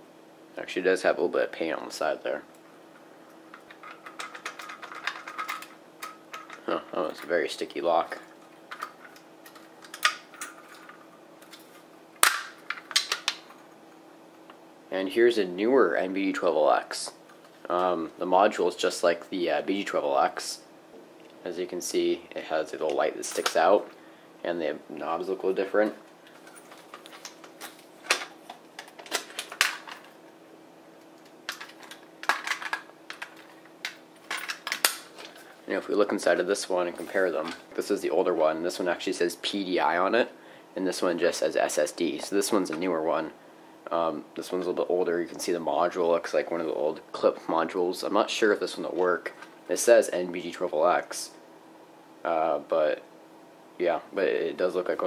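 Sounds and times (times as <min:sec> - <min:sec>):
plastic housings clicking: 0:03.5 - 0:06.7
loud plastic snap: 0:12.2 - 0:13.5.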